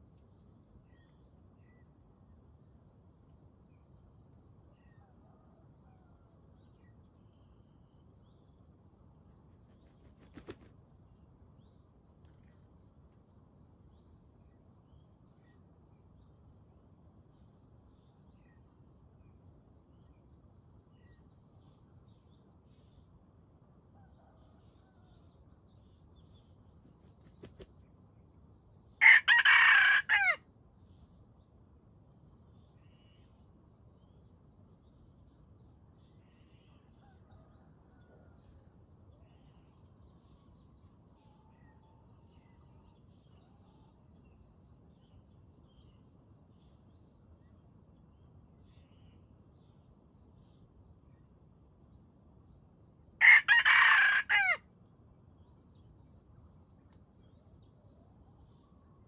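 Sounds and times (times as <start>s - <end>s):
high insect hum: 0.0s - 59.0s
rooster crowing: 29.0s - 30.4s, 53.2s - 54.6s.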